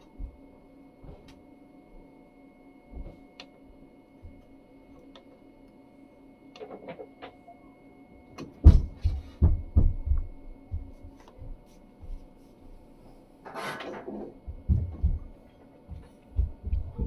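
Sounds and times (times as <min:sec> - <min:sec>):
fan and heater hum: 0:00.0 - 0:17.0
dull low thumps: 0:08.7 - 0:11.0.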